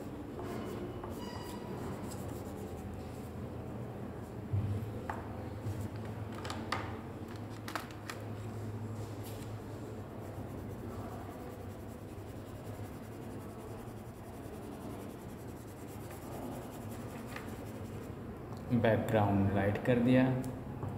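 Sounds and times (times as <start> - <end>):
steady low hum: 8.7 - 18.6
crayon scribbling on paper: 10.2 - 18.1.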